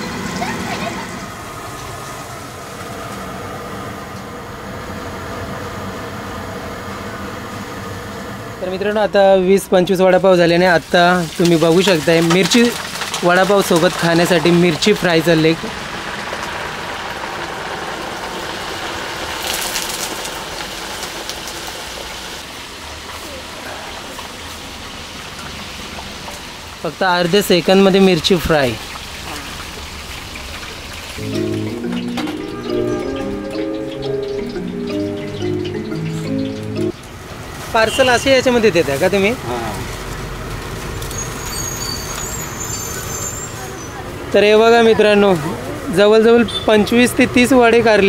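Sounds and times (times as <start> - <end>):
food sizzling in hot oil: 10.3 - 34.9.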